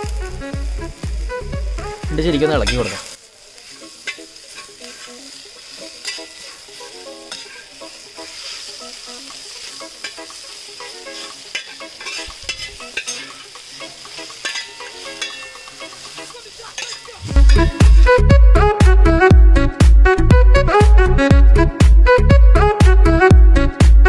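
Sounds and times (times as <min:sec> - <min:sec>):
food sizzling in oil: 0:00.0 - 0:18.8
spatula scraping metal pan: 0:03.8 - 0:18.0
spatula clicking against pan: 0:11.2 - 0:17.2.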